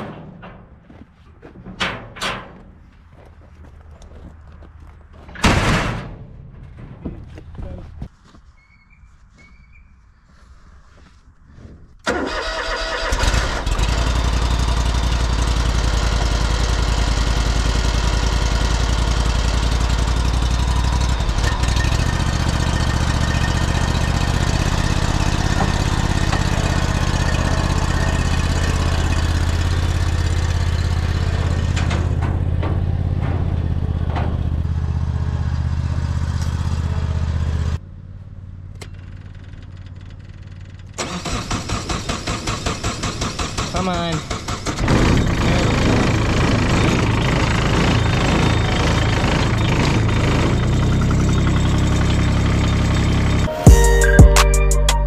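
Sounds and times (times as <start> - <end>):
mower engine cranking and running: 12.0 - 37.8, 38.7 - 53.5.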